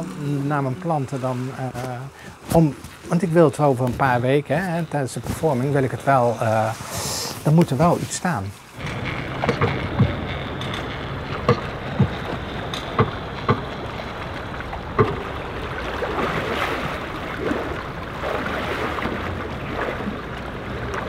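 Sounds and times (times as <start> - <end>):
water sloshing and lapping: 0.0 - 21.0
sharp knocks: 8.8 - 13.8, 15.0 - 15.3.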